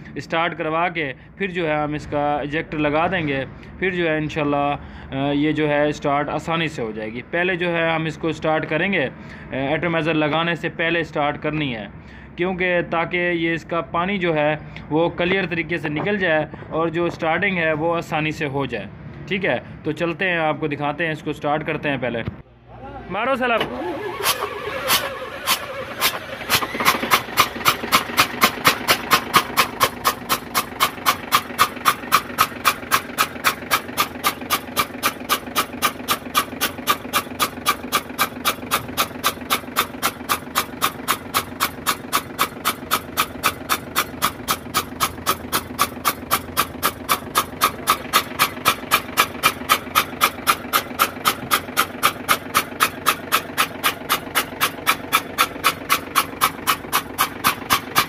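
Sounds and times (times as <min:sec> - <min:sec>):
diesel engine drone: 0:00.0 - 0:20.2, 0:21.5 - 0:58.0
sharp puffs from injector bore: 0:23.9 - 0:58.0.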